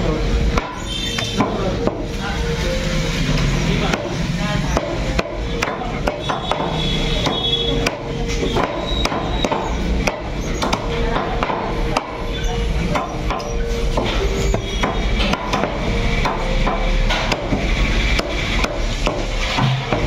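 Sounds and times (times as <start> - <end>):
faint music: 0.0 - 20.0
cleaver chopping on wooden block: 4.7 - 12.2, 14.8 - 20.0.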